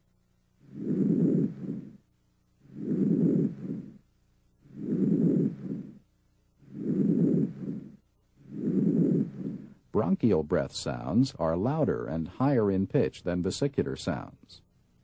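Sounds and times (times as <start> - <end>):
vesicular breath sounds: 0.6 - 9.8.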